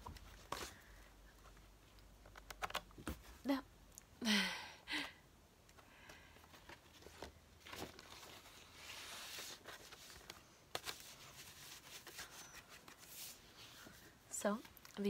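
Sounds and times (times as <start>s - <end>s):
paper sleeve rustling: 6.8s - 14.1s.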